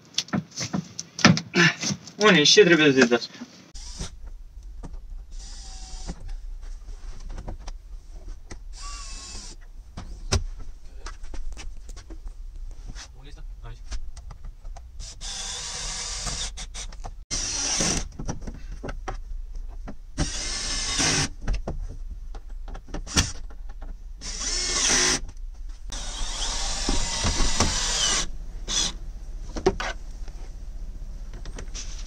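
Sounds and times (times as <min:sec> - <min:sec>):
cordless drill driving fasteners: 0:03.8 - 0:04.2, 0:05.3 - 0:06.4, 0:08.7 - 0:09.6, 0:15.0 - 0:18.1, 0:20.2 - 0:21.3, 0:24.2 - 0:25.3, 0:25.9 - 0:29.0.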